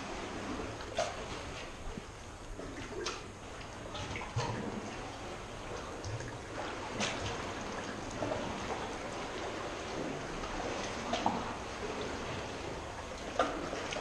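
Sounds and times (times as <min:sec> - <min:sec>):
paddle splashing in water: 0:00.0 - 0:14.0
water dripping off paddle: 0:05.7 - 0:14.0.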